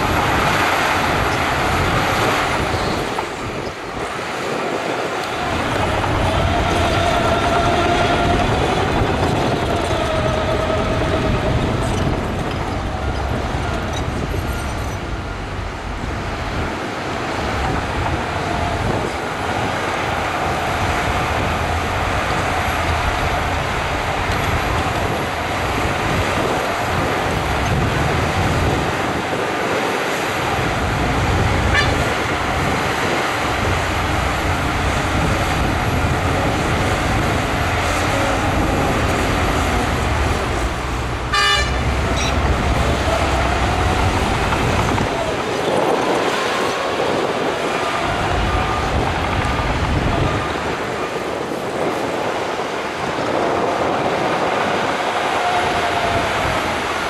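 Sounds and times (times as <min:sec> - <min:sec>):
heavy diesel engines running: 0:00.0 - 0:57.0
hydraulic whining tone: 0:05.2 - 0:16.6.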